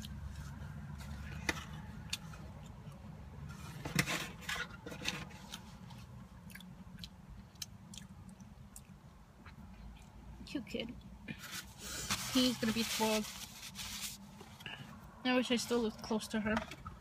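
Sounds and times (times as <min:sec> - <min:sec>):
chewing crispy food: 0:05.4 - 0:10.2.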